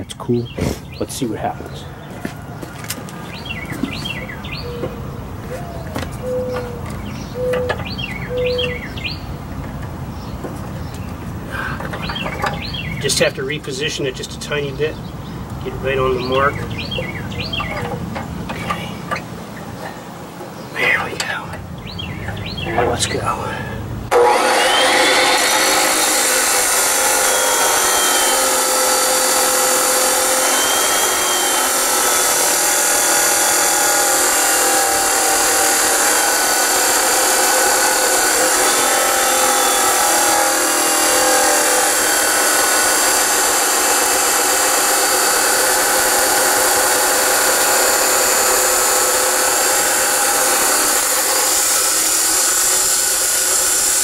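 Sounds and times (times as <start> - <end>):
abrasive saw grinding metal: 24.1 - 54.0.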